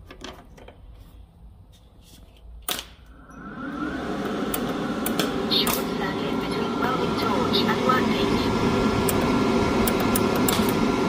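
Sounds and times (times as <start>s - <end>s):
welder cooling fan running: 3.1s - 11.0s.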